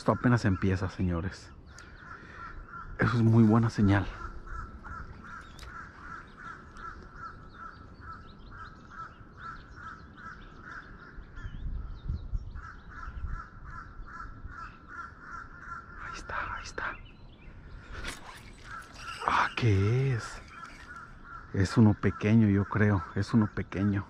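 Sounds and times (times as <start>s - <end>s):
animal calling rhythmically: 1.6s - 11.6s, 12.5s - 24.0s
faint higher chirps: 16.2s - 21.9s.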